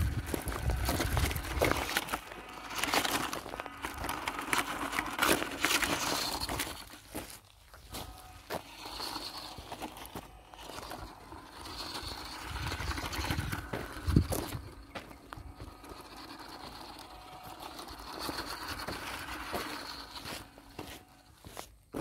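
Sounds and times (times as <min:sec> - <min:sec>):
toy truck tyres crunching on gravel: 0:00.0 - 0:22.0.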